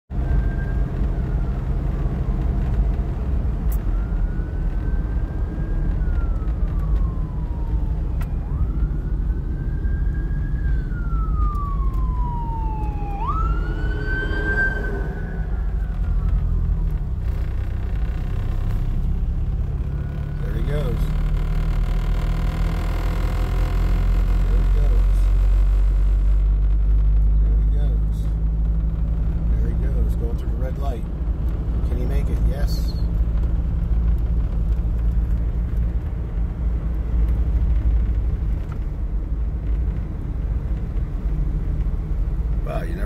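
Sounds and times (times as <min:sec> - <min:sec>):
fire truck siren wailing: 0:00.1 - 0:27.0
road rumble inside car: 0:00.1 - 0:43.0.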